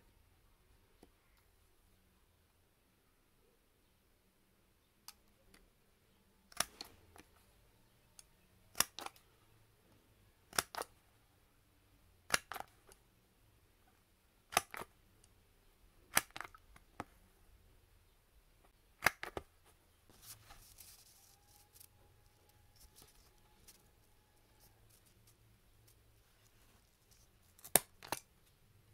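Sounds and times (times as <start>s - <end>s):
hole punch snapping through paper: 8.7s - 9.2s, 10.5s - 10.9s, 16.1s - 16.6s, 27.6s - 28.3s.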